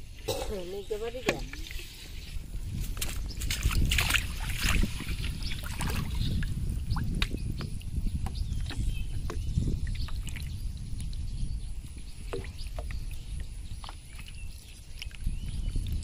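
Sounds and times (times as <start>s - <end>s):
water sloshing and splashing: 0.0s - 16.0s
small clicks and drips: 12.3s - 16.0s.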